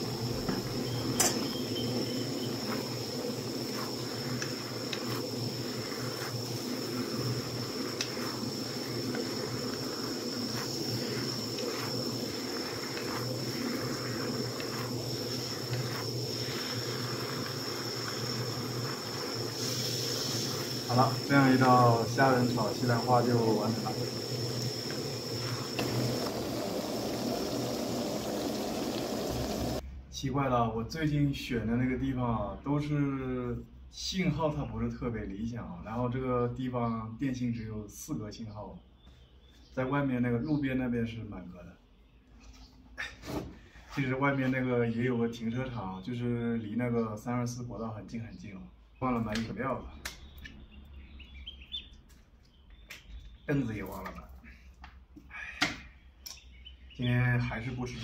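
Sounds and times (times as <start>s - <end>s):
food stir-frying in a pan: 0.0s - 29.8s
high-pitched insect drone: 0.0s - 29.8s.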